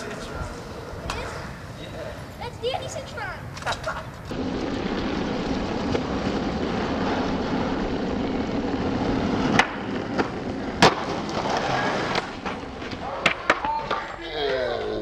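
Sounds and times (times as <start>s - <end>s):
skateboard wheels rolling on concrete: 0.0s - 15.0s
skateboard tail pop: 9.4s - 11.4s.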